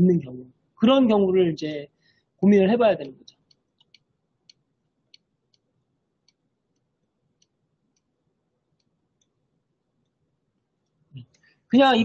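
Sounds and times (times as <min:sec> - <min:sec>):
faint computer mouse clicks: 0:03.4 - 0:08.1, 0:08.8 - 0:09.4.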